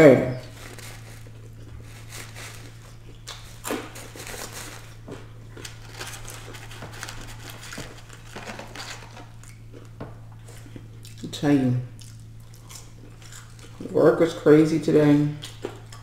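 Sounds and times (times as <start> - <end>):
steady low hum: 0.0 - 16.0
paper packaging rustling: 0.5 - 2.8, 3.8 - 5.0, 5.6 - 9.4.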